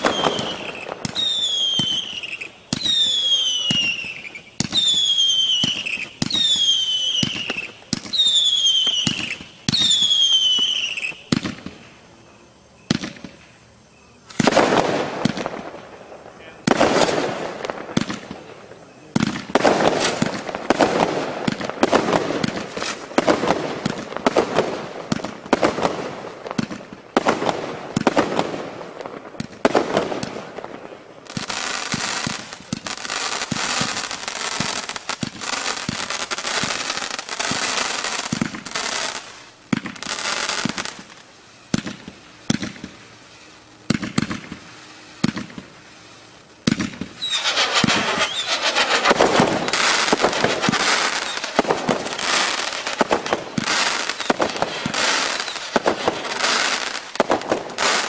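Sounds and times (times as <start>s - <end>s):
dense firework crackling: 0.0s - 58.0s
firework launch reports and bursts: 0.0s - 58.0s.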